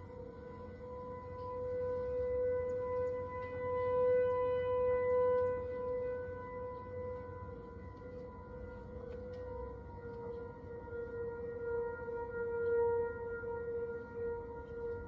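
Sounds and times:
warning siren steady tone: 0.0s - 15.0s.

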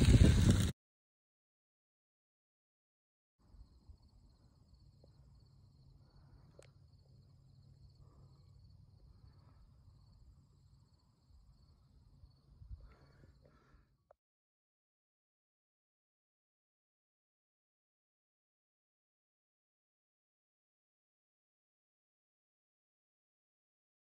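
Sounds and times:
insects chirring: 3.4s - 13.8s.

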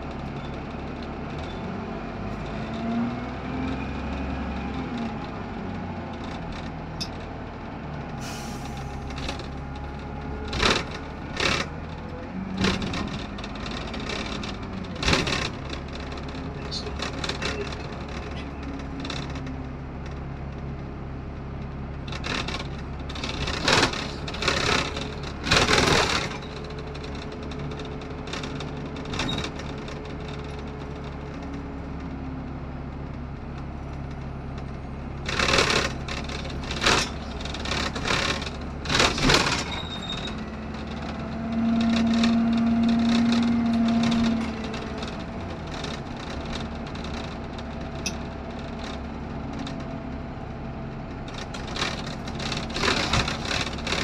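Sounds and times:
bus engine and road hum: 0.0s - 54.0s
rattling of bus body: 0.0s - 54.0s.

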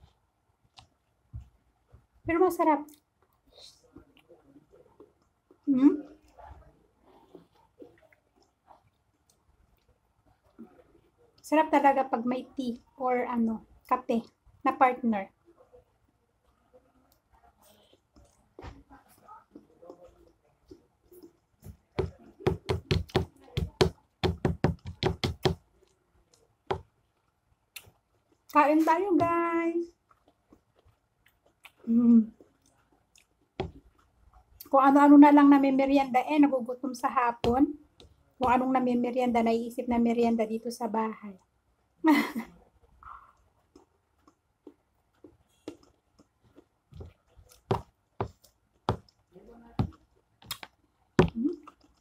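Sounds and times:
chewing: 2.9s - 11.4s, 16.4s - 22.4s, 25.6s - 29.0s, 29.8s - 34.8s, 42.8s - 52.0s.

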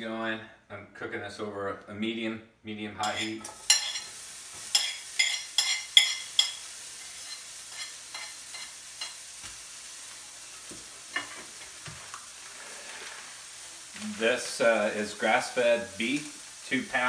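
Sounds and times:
onion sizzling in hot oil: 3.2s - 17.0s.

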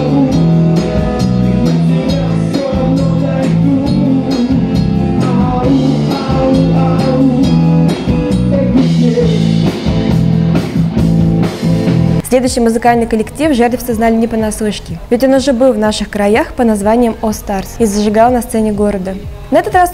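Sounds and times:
person singing: 0.0s - 10.0s
electric guitars: 0.0s - 12.2s
drum kit: 0.0s - 15.1s, 17.8s - 19.9s.

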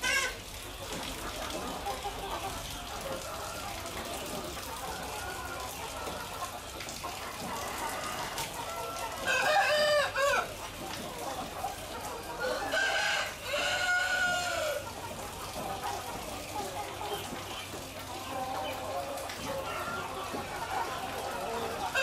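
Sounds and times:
chickens clucking: 0.0s - 22.0s
rooster crowing: 9.3s - 10.5s, 12.4s - 14.8s.

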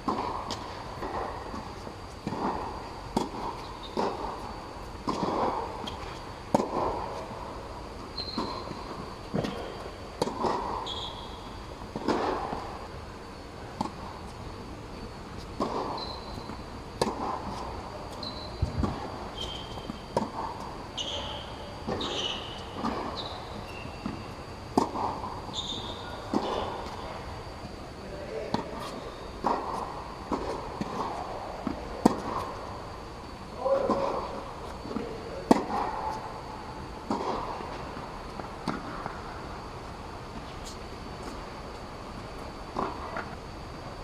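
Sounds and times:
faint high whine: 0.0s - 44.0s
sneakers squeaking on court: 3.6s - 4.2s, 8.2s - 9.9s, 10.8s - 11.5s, 15.4s - 16.6s, 17.6s - 20.2s, 20.9s - 27.2s
tennis ball racket hits: 33.6s - 36.2s.

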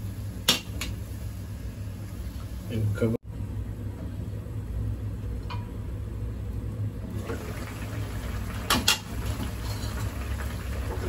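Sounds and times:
curry bubbling in a pan: 7.1s - 11.0s.

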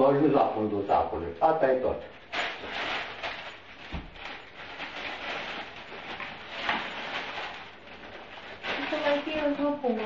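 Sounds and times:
gift wrapping crinkling: 2.1s - 10.0s.

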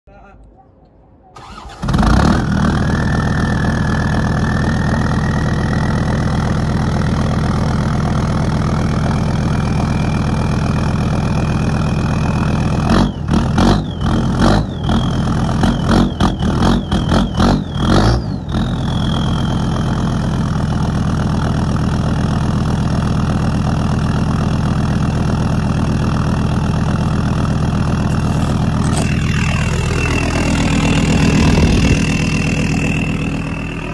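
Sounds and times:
diesel engine idling: 1.4s - 33.9s
faint high whine: 28.2s - 33.9s.

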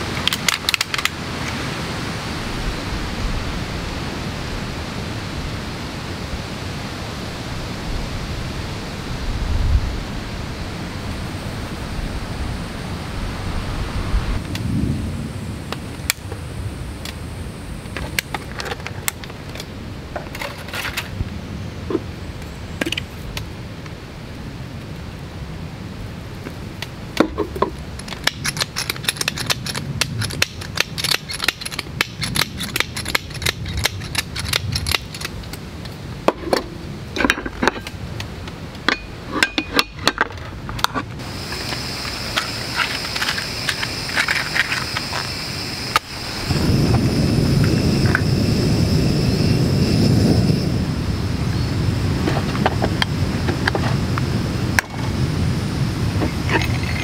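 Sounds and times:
steady high hum: 40.9s - 57.0s.

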